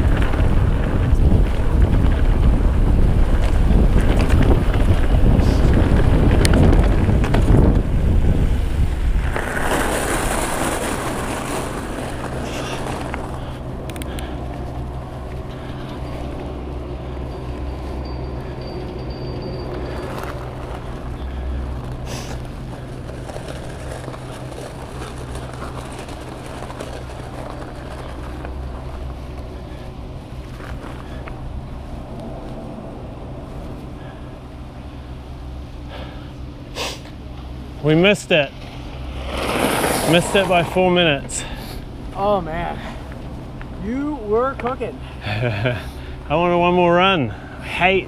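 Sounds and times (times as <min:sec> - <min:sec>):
wind buffeting microphone: 0:00.0 - 0:37.8
bike tyres rumbling on dirt: 0:00.0 - 0:48.0
steady low hum: 0:00.0 - 0:48.0.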